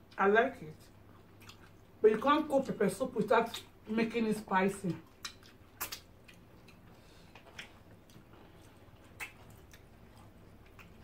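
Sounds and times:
low room hum: 0:00.0 - 0:11.0
chewing mouth clicks and smacks: 0:01.0 - 0:01.9, 0:05.0 - 0:11.0.

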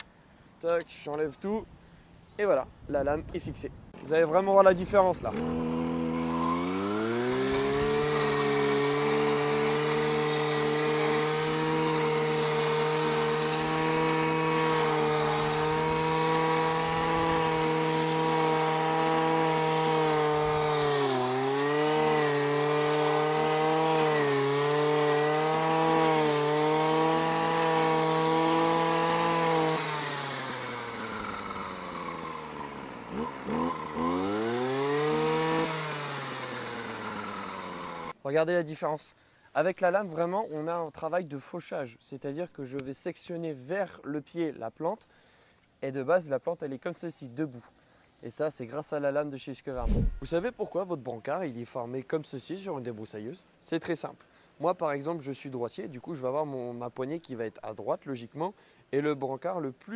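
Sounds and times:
brush cutter engine revving: 0:05.1 - 0:38.2, 0:49.8 - 0:50.5
blade cutting tall grass: 0:05.2 - 0:38.2, 0:49.8 - 0:50.5.

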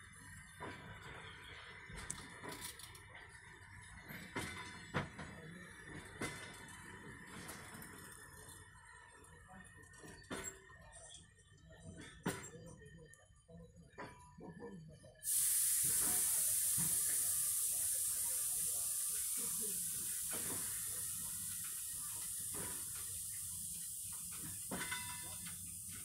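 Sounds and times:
air brakes hissing: 0:15.2 - 0:26.0
train coaches knocking: 0:15.3 - 0:26.0.

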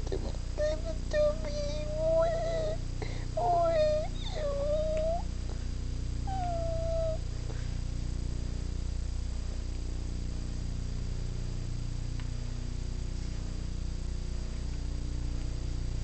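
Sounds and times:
cat meowing: 0:06.3 - 0:07.2.

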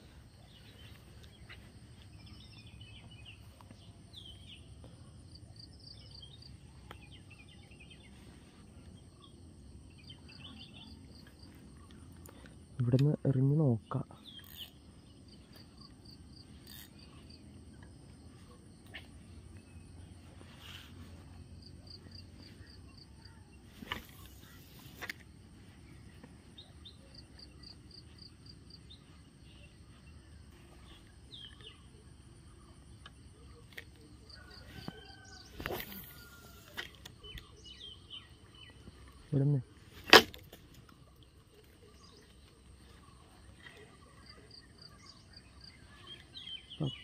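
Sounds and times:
insect trill: 0:09.1 - 0:47.0
brief rustling: 0:34.6 - 0:37.3.

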